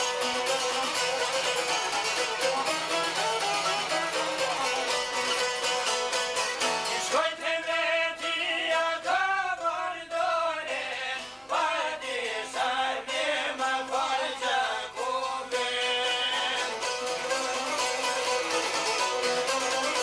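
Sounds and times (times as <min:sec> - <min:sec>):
plucked long-necked lute: 0:00.0 - 0:07.3, 0:12.5 - 0:20.0.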